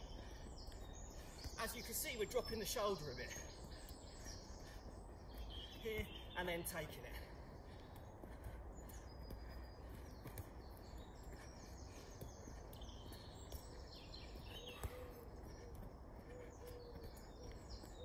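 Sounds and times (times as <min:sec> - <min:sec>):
birds singing and chirping: 0:00.0 - 0:18.0
football taps: 0:14.6 - 0:15.1.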